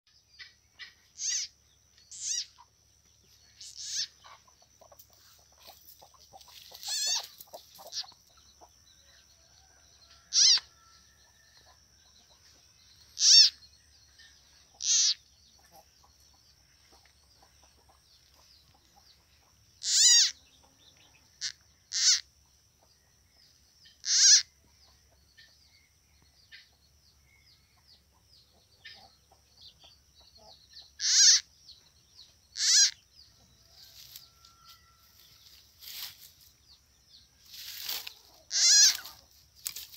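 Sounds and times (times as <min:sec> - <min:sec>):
short high-pitched animal calls: 0:01.2 - 0:01.5, 0:02.1 - 0:02.5, 0:03.6 - 0:04.1, 0:06.8 - 0:07.3, 0:10.3 - 0:10.7, 0:13.2 - 0:13.6, 0:19.8 - 0:20.4, 0:21.4 - 0:22.2, 0:24.0 - 0:24.5, 0:31.0 - 0:31.4, 0:32.6 - 0:33.0, 0:38.5 - 0:39.2.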